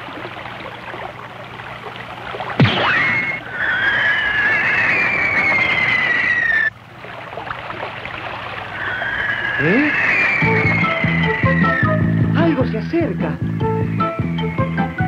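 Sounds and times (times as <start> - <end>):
toy gun shot with zap: 2.6 - 3.4
descending whistling tone: 2.6 - 6.7, 8.8 - 12.5
rushing stream water: 4.8 - 11.8.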